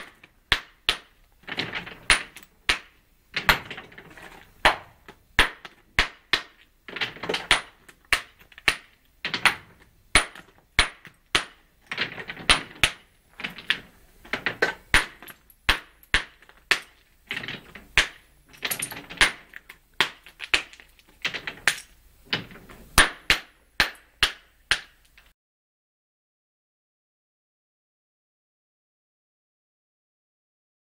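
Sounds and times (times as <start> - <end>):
stone chips clattering: 0.9 - 24.1
hammer striking stone: 2.0 - 3.7, 4.6 - 11.6, 14.9 - 17.0, 17.9 - 18.3, 23.0 - 25.0.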